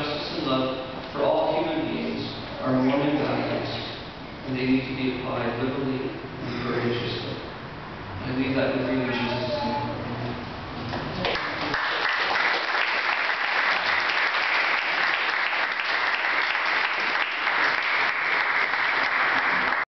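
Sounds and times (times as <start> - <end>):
audience applauding: 11.2 - 19.9.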